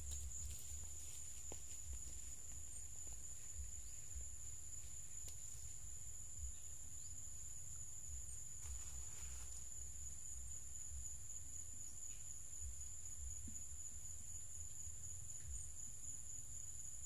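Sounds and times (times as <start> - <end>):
faint ticks: 0.0 - 5.8
high-pitched insect chorus: 0.0 - 17.0.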